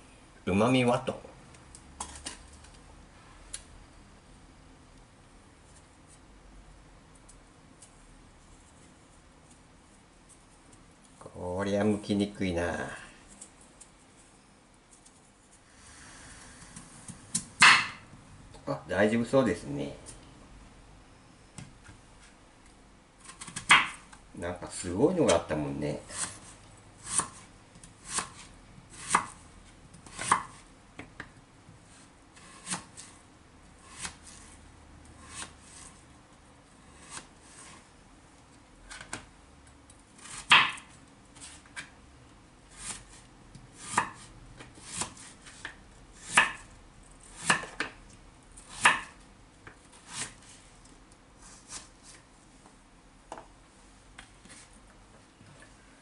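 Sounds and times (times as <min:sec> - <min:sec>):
knife chopping on wooden board: 0:17.3 - 0:18.0, 0:28.0 - 0:29.4, 0:30.1 - 0:30.6, 0:40.2 - 0:40.9, 0:43.8 - 0:44.2, 0:44.8 - 0:46.6, 0:47.3 - 0:48.0, 0:48.7 - 0:49.2.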